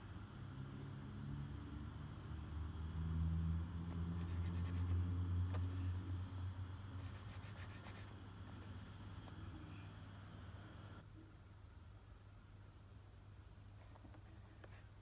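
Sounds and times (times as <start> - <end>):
fingertips scratching cardboard: 4.2 - 6.4, 7.0 - 9.4.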